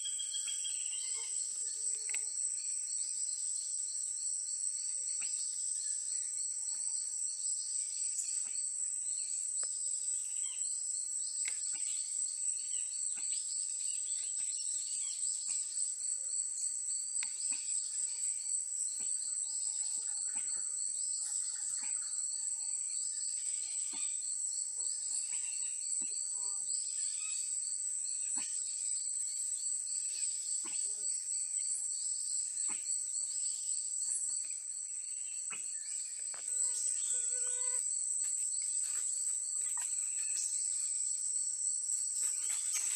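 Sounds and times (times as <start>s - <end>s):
insects droning: 0.0s - 42.9s
short insect clicks: 1.9s - 2.3s, 11.4s - 11.8s
insect pulsing trill: 17.2s - 37.9s.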